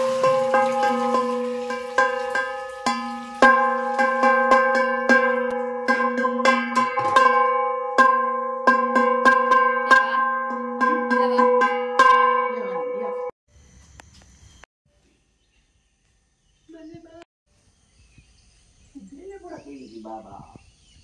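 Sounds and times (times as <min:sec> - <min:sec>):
metal bell struck repeatedly: 0:02.0 - 0:13.4.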